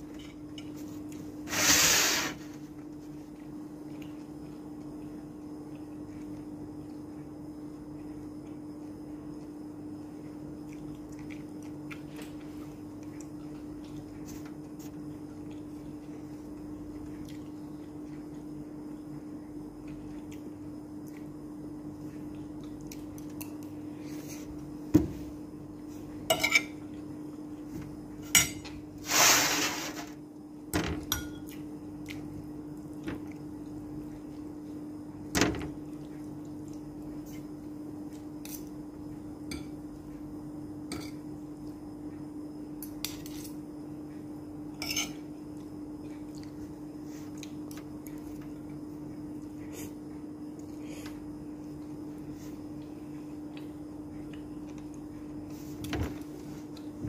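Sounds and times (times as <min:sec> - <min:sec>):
steady low hum: 0:00.0 - 0:57.0
cutlery clinking on a plate: 0:26.3 - 0:26.8, 0:31.1 - 0:31.5, 0:44.8 - 0:45.2.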